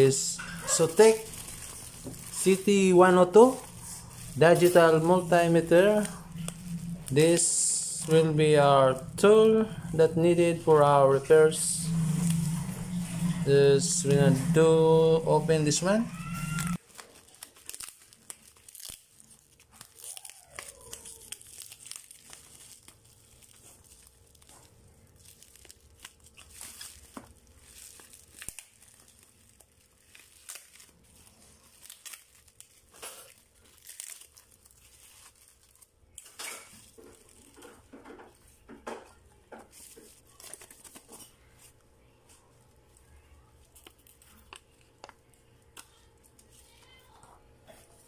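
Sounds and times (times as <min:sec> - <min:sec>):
packing tape ripping: 0:00.0 - 0:08.2, 0:16.3 - 0:38.0
plastic bag crinkling: 0:00.0 - 0:48.0.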